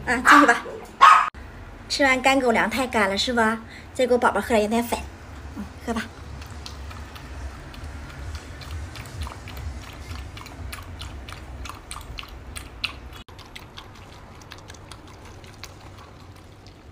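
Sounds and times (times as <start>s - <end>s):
dog lapping from plastic bowl: 6.3s - 16.9s.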